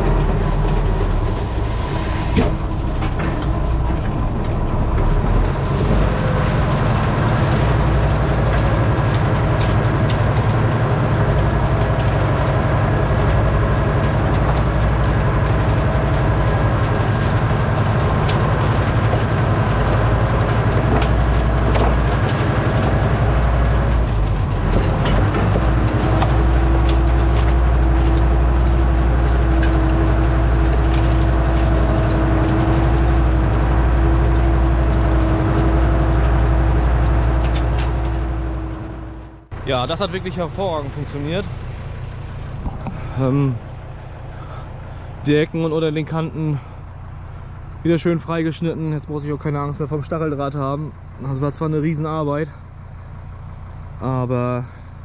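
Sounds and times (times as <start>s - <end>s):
tractor diesel engine under load: 0.0s - 55.0s.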